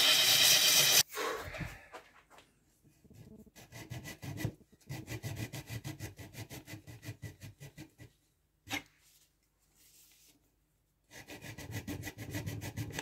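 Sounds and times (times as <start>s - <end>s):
hand saw cutting wood: 0.0s - 1.0s, 3.6s - 8.0s, 11.1s - 13.0s.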